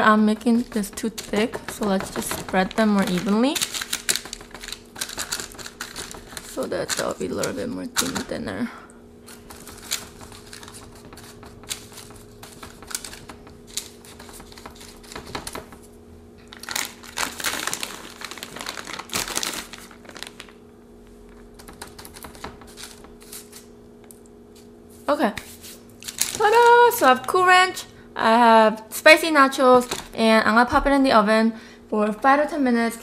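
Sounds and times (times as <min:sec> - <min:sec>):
fingertips tapping on paper: 0:00.0 - 0:08.3, 0:09.3 - 0:15.9, 0:21.6 - 0:23.3
parchment paper crinkling: 0:00.0 - 0:08.3, 0:09.2 - 0:15.7, 0:16.4 - 0:20.6, 0:25.5 - 0:27.1
faint steady hum: 0:00.0 - 0:33.0.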